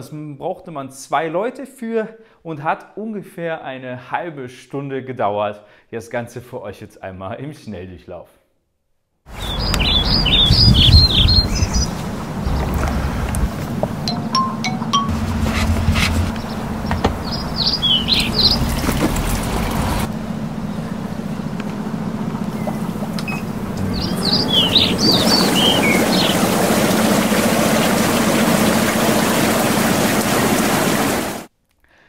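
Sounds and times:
birds chirping: 0:09.3 - 0:31.3
steady low hum: 0:11.9 - 0:30.0
hot tub water bubbling: 0:17.9 - 0:20.2, 0:22.8 - 0:31.5.

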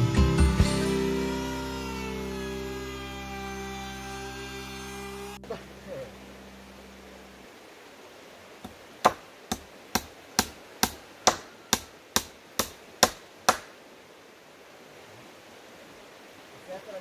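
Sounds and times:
hammer striking wood: 0:09.0 - 0:13.7.

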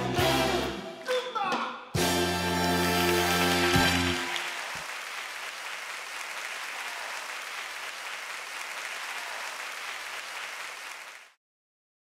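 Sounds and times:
audience applauding: 0:02.7 - 0:11.4.

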